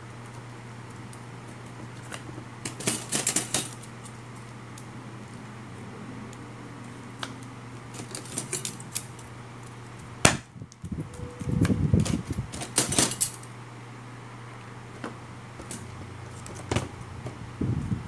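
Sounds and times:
metal sheets clicking and scraping: 0:02.0 - 0:04.2, 0:07.3 - 0:09.3, 0:11.4 - 0:13.5.

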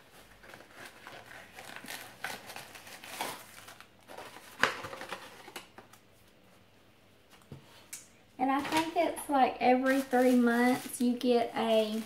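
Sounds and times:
packaging crinkling: 0:00.0 - 0:06.0, 0:09.7 - 0:12.0.

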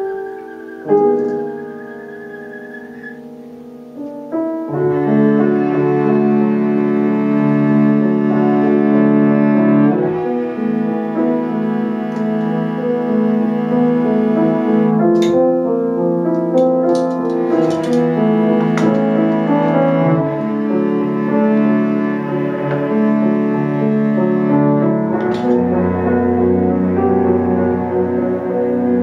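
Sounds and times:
bowed cello notes: 0:00.0 - 0:03.5, 0:16.6 - 0:29.0
piano chords: 0:00.0 - 0:29.0.

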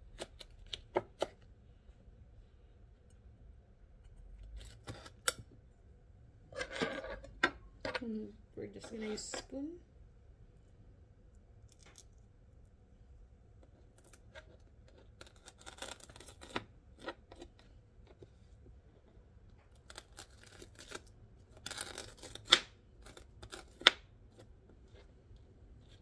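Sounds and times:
spoon scraping peppers: 0:08.7 - 0:09.8.

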